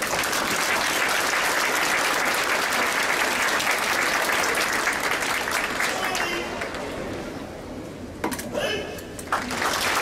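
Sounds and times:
crowd applauding: 0.0s - 6.8s, 9.3s - 10.0s.

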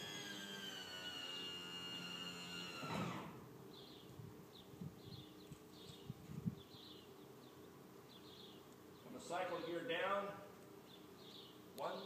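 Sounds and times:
hydraulic pump winding down: 0.0s - 3.4s
small bird chirping: 3.7s - 9.2s.

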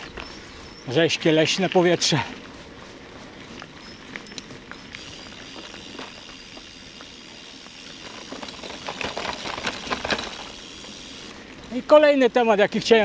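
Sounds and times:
bicycle crunches and rattles: 0.0s - 13.0s
bicycle tyre hiss: 4.8s - 11.7s.

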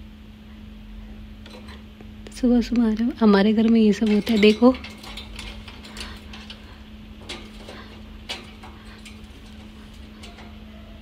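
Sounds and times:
steady low hum: 0.0s - 11.0s
bird claws ticking on wire cage: 4.0s - 10.7s.

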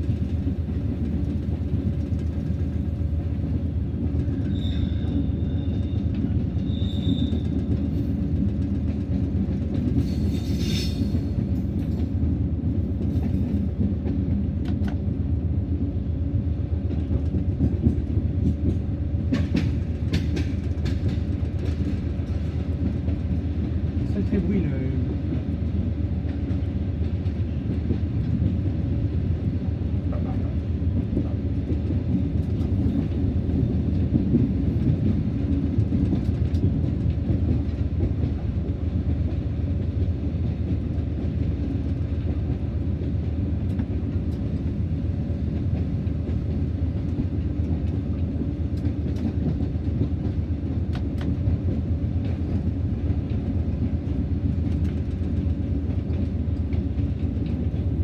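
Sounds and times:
diesel locomotive engine drone: 0.0s - 58.0s
train rumbling on track: 0.0s - 58.0s.

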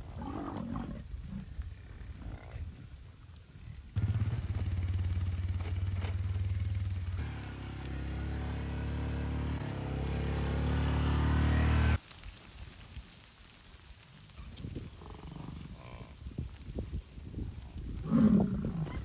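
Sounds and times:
quad bike engine running: 4.0s - 12.0s.

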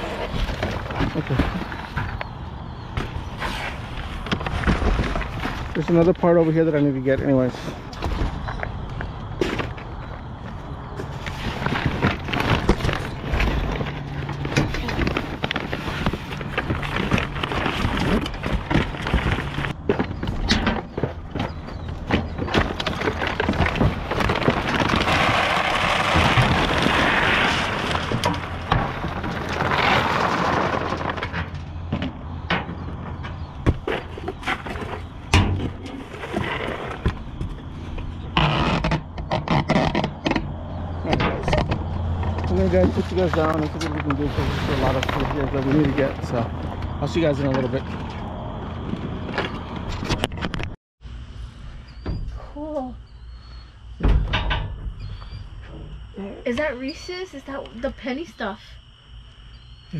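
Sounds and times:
plastic bags rustling and crinkling: 11.1s - 19.8s, 22.3s - 31.4s, 42.6s - 46.5s
rummaging in metal dumpster: 41.0s - 48.2s.

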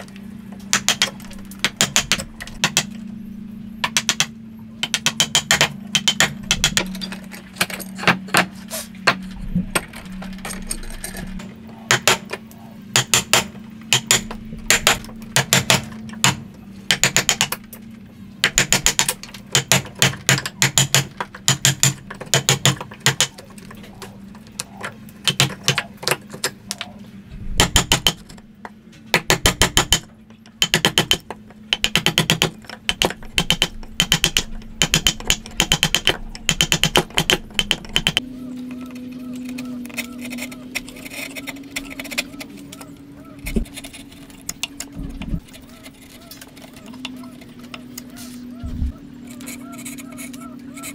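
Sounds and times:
steady low hum: 0.0s - 50.9s
mallet striking wood chisel: 0.7s - 2.9s, 3.8s - 6.9s, 13.0s - 17.5s, 18.4s - 23.4s, 27.6s - 28.2s, 29.2s - 38.2s.

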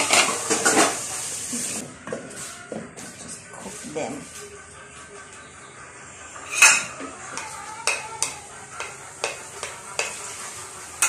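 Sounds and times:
faint frying sizzle: 0.0s - 2.7s, 7.2s - 11.0s
metal spoon clanking on pan: 6.5s - 10.4s
spoon clinking and scraping: 6.5s - 11.0s.

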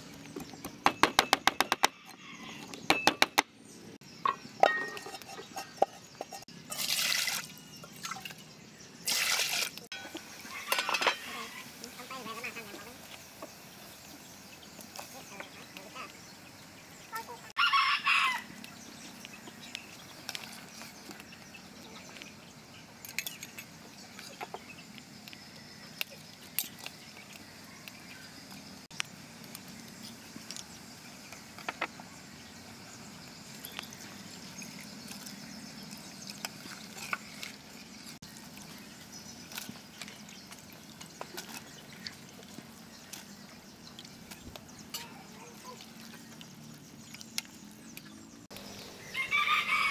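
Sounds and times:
rooster crowing: 17.6s - 18.6s, 49.0s - 49.9s.

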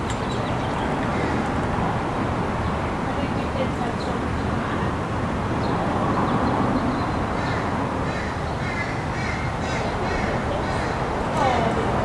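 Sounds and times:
bird calls: 0.0s - 1.5s, 5.6s - 11.6s.

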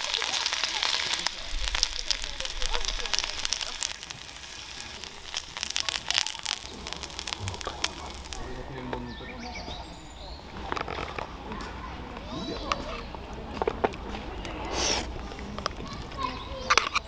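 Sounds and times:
meat sizzling and popping: 0.0s - 17.0s.

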